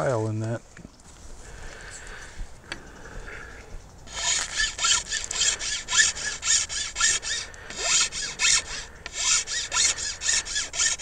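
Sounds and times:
file squeaking: 0:04.1 - 0:11.0
metal file rasping: 0:04.1 - 0:11.0.

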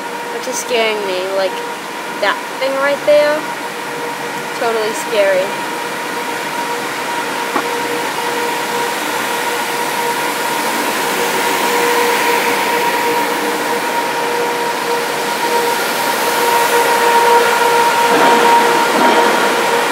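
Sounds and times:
ventilation fans whirring: 0:00.0 - 0:19.9.

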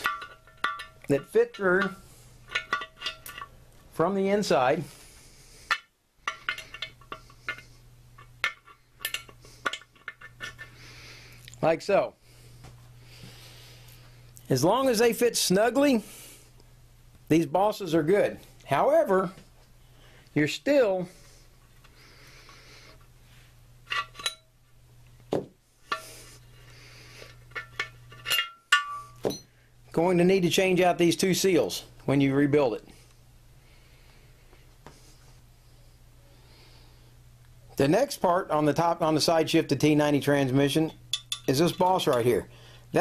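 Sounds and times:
metal rails clinking on metal case: 0:00.0 - 0:03.5.

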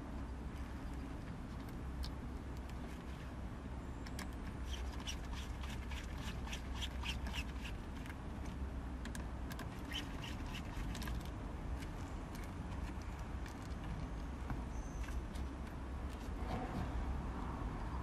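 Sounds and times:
clicks and squeaks of plastic trim: 0:04.0 - 0:08.2, 0:09.1 - 0:11.3.

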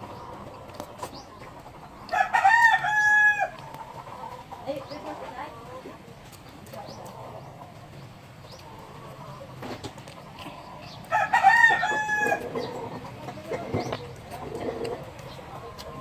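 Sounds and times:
rooster crowing: 0:02.1 - 0:03.6, 0:11.1 - 0:12.8.

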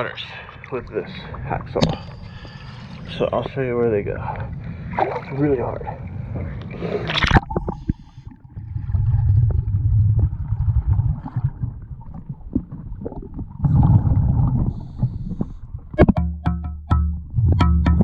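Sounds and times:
underwater regulator bubbles: 0:05.0 - 0:16.6
water splash: 0:06.9 - 0:15.0.

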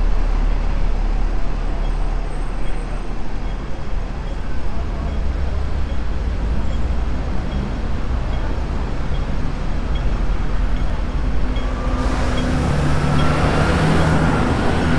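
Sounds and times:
bus engine rumble: 0:00.0 - 0:14.9
pedestrian crossing pips: 0:00.0 - 0:14.9
vehicle accelerating whine: 0:10.6 - 0:14.9.

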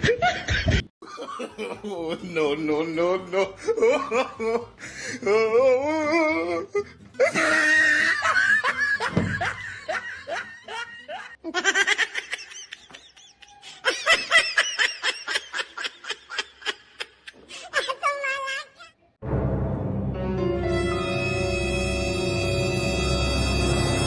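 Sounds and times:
person laughing: 0:00.0 - 0:19.1.

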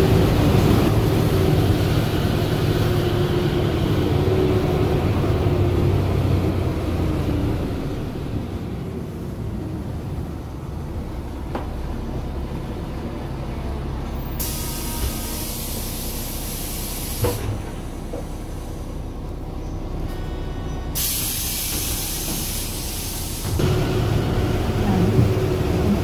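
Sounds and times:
bus engine rumbling: 0:00.0 - 0:26.0
loud hissing: 0:14.4 - 0:17.4, 0:20.9 - 0:23.9.

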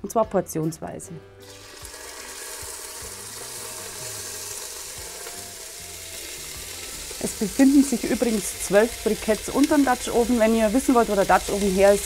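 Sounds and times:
meat sizzling in hot fat: 0:01.4 - 0:12.0.

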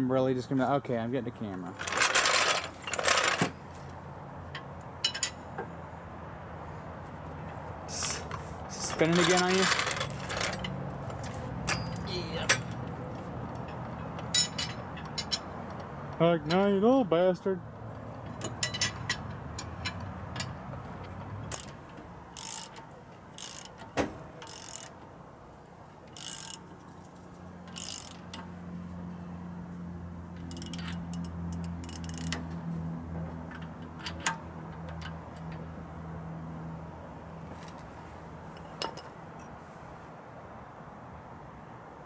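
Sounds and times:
metal clinks: 0:05.0 - 0:05.6, 0:13.6 - 0:15.5
ratchet wrench clicking: 0:21.4 - 0:25.0, 0:26.1 - 0:28.5, 0:30.4 - 0:32.5.

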